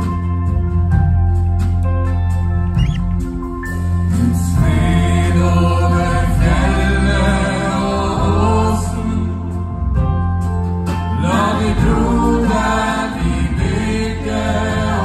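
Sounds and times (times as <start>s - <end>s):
band playing hymn: 0.0s - 15.0s
bass line: 0.0s - 15.0s
backing singers: 4.1s - 9.6s, 11.1s - 15.0s
man singing lead: 4.1s - 9.7s.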